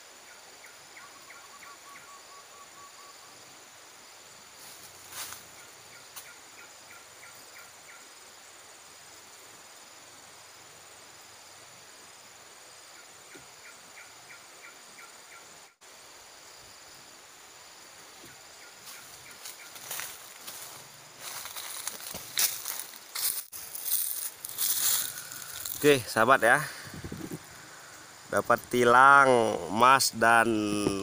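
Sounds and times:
insects buzzing: 0:00.0 - 0:31.0
recorded bird chirps and trill: 0:00.1 - 0:03.5, 0:05.5 - 0:08.1, 0:12.8 - 0:15.8.

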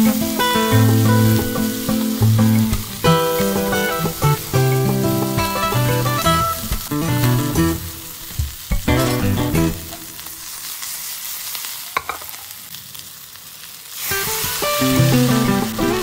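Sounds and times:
guitar background music: 0:00.0 - 0:10.5, 0:14.1 - 0:16.0
food sizzling in a pan: 0:00.0 - 0:16.0.

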